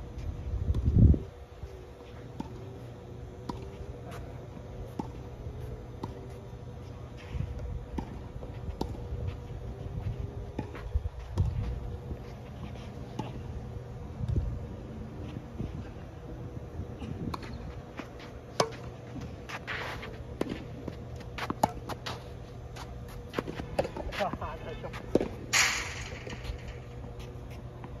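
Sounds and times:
tennis ball struck by rackets: 0:25.1 - 0:27.2.

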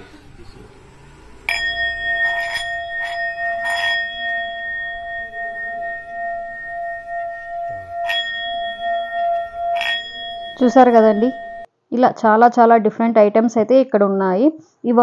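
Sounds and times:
singing bowl struck and ringing: 0:01.2 - 0:11.7.

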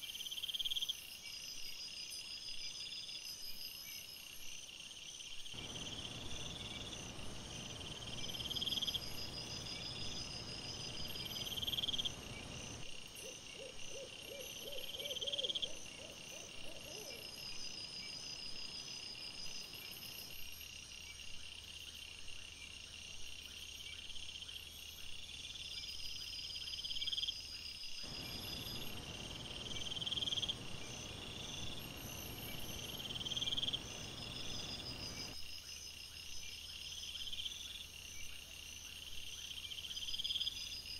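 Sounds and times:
crickets chirping: 0:00.0 - 0:40.9
steady hiss: 0:05.6 - 0:12.8, 0:28.1 - 0:35.4.

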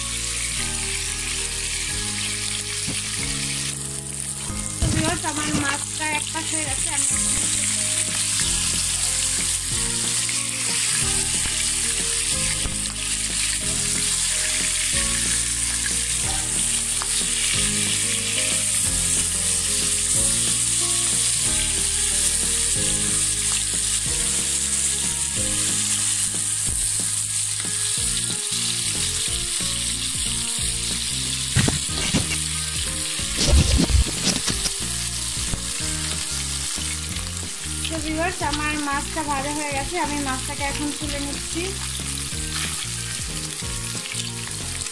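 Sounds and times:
fish sizzling in hot oil: 0:00.0 - 0:44.9
knocks and scrapes: 0:31.6 - 0:32.5, 0:33.2 - 0:34.8.

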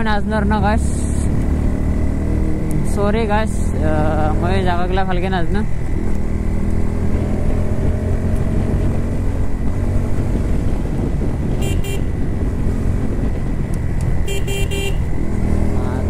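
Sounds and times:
motorcycle engine running: 0:00.0 - 0:16.0
horn beeping: 0:11.5 - 0:12.2, 0:14.2 - 0:15.1.

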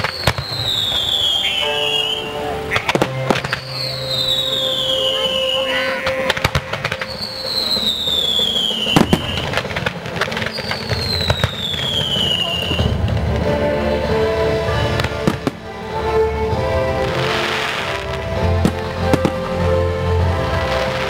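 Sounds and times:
high falling whistle: 0:00.0 - 0:09.6
firework shells bursting: 0:00.0 - 0:13.4
firework crackle: 0:00.0 - 0:21.0.

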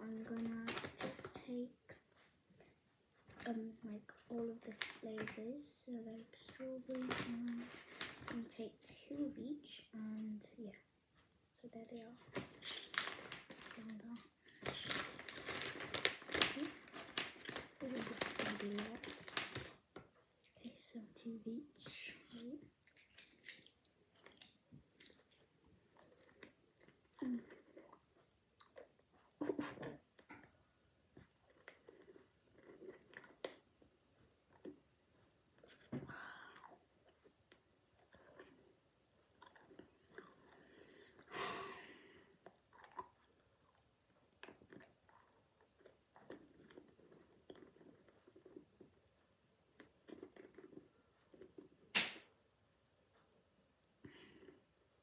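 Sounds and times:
child chewing candies: 0:11.8 - 0:21.0, 0:22.2 - 0:51.9.

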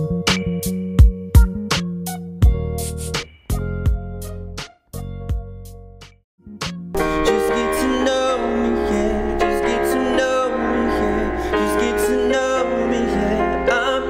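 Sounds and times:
digital piano keyboard: 0:00.0 - 0:14.0
man singing slow r and b song: 0:07.0 - 0:14.0.

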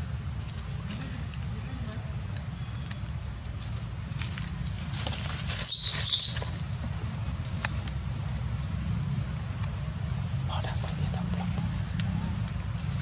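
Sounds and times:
monkey screaming: 0:05.6 - 0:06.7
low background rumble: 0:06.2 - 0:13.0.

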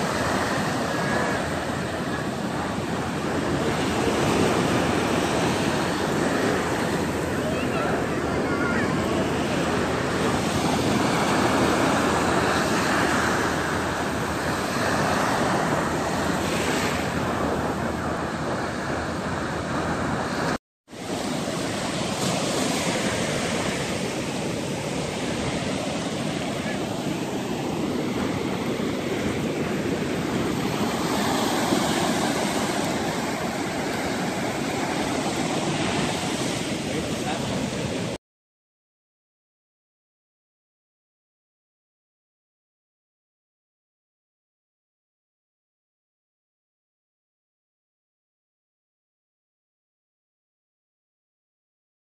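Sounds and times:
surf washing on sandy beach: 0:00.0 - 0:38.2.

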